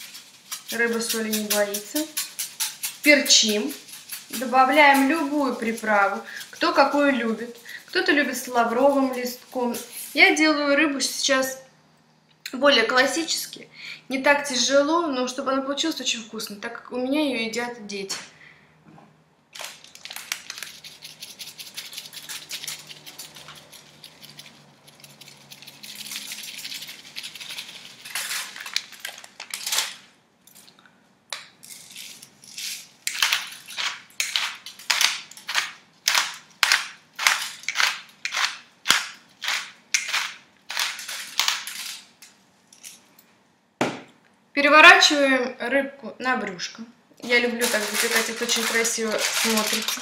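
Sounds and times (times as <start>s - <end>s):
dried seasoning crushed by hand: 19.6s - 29.8s, 31.6s - 42.2s, 47.6s - 50.0s.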